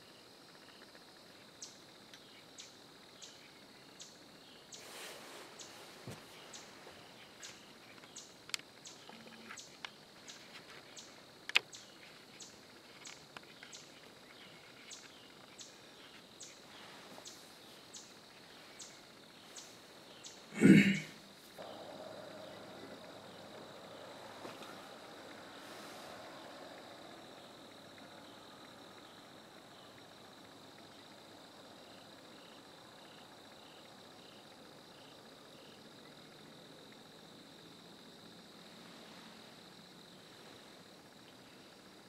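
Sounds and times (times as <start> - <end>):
insects droning: 0.0 - 42.0
soft rustles: 4.8 - 8.0, 16.0 - 17.9.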